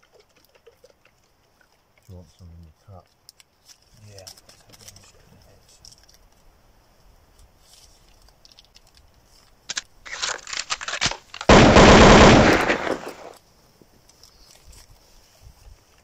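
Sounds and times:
gunshots: 0:09.7 - 0:13.3
automatic gunfire burst: 0:10.9 - 0:13.3.

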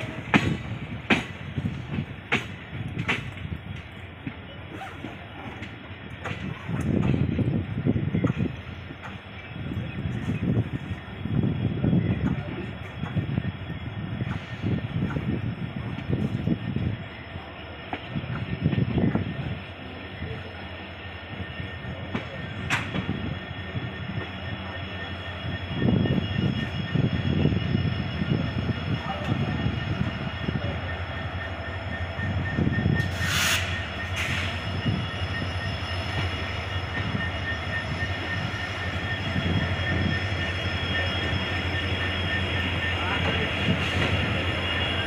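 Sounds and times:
train wheels rumbling and clattering: 0:00.0 - 0:45.0
faint high wheel squeal: 0:09.2 - 0:45.0.

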